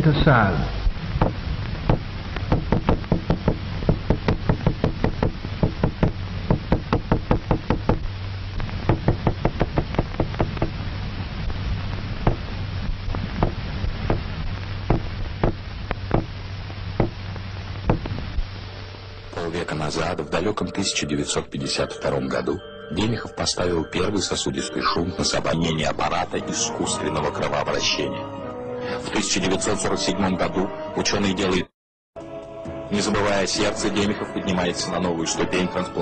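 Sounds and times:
sharp knocks on hard surface: 1.2 - 8.1, 8.8 - 10.8, 12.2 - 12.5, 13.4 - 14.2, 14.9 - 16.4, 17.0 - 17.2, 17.9 - 18.2.

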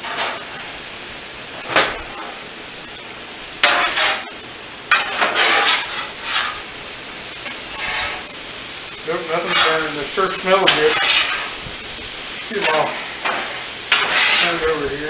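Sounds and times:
metal spatula scraping griddle: 0.0 - 0.6, 3.6 - 6.8, 7.4 - 8.4, 9.1 - 11.7, 12.4 - 15.0
steady sizzle: 0.0 - 15.0.

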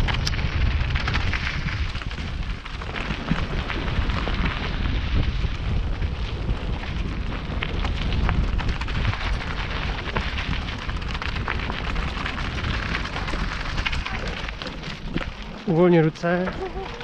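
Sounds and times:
tyres crackling on stones: 0.0 - 17.0
wind buffeting microphone: 0.0 - 17.0
bike rattling clicks: 6.8 - 17.0.

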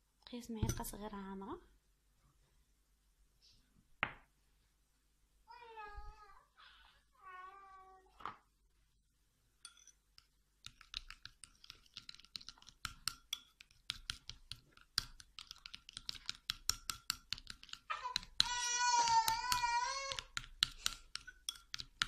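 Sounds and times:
spoon scraping glass bowl: 9.6 - 18.5, 20.1 - 22.0.

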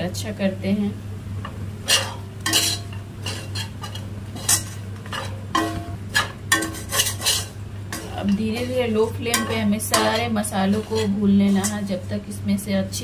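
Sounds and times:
metal spatula scraping a pan: 1.8 - 12.2.

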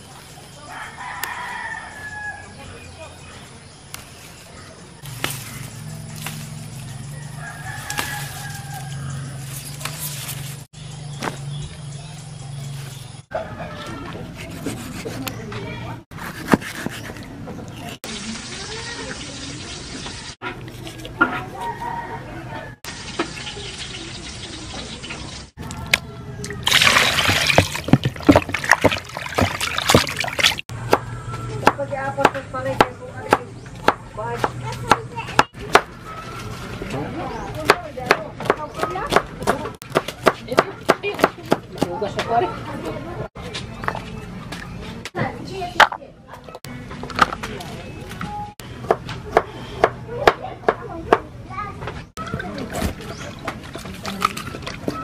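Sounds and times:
rooster crowing: 0.7 - 2.6, 7.1 - 9.4, 21.4 - 22.9
water splashing and sloshing: 22.8 - 30.7, 52.2 - 55.0.

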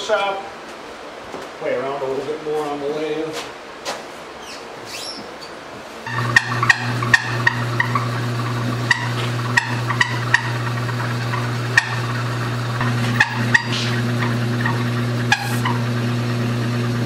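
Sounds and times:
machine ticks and rattles: 6.1 - 15.9
lathe motor humming: 6.1 - 17.0.

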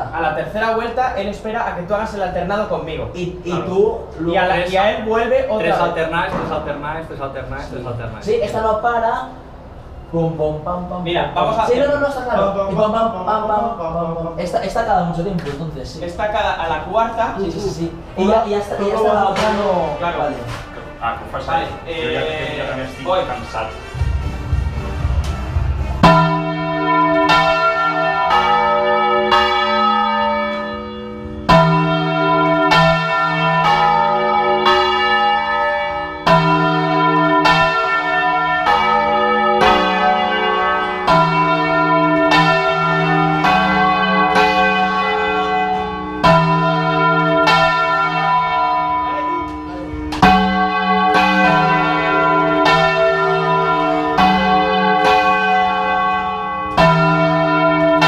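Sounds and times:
church bells pealing: 26.0 - 58.0.

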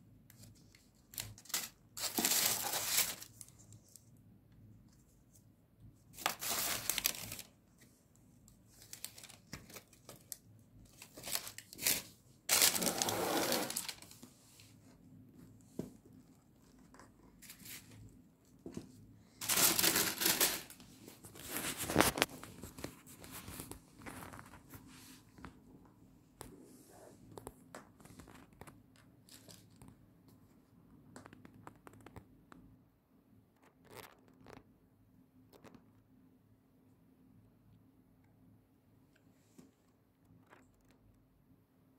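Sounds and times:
tissue paper rustling: 0.6 - 4.0, 6.1 - 7.6, 8.7 - 14.9, 16.6 - 18.0, 19.3 - 25.4.

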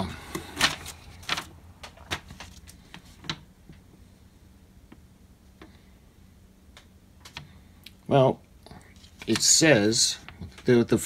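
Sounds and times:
packing paper rustling: 0.3 - 3.4, 8.9 - 10.8.

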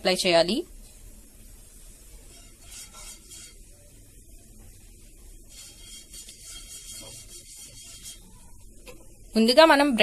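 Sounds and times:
brush swishing on frying pan: 1.7 - 3.7, 5.4 - 8.4.

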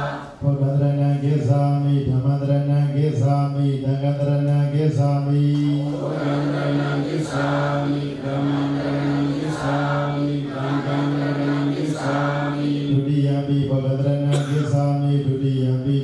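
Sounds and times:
voices chanting in unison: 0.0 - 0.4, 5.6 - 13.3.

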